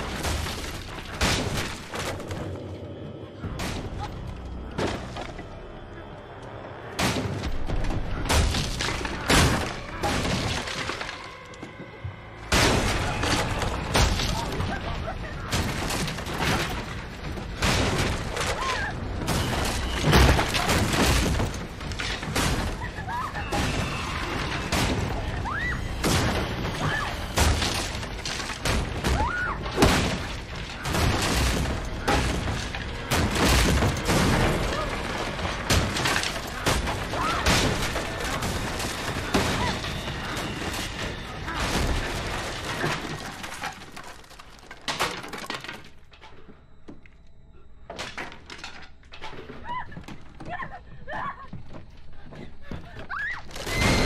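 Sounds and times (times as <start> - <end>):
wood breaking: 0.0 - 2.6, 7.0 - 11.8, 12.4 - 47.0, 53.1 - 54.0
crashes and heavy thuds: 12.4 - 45.9.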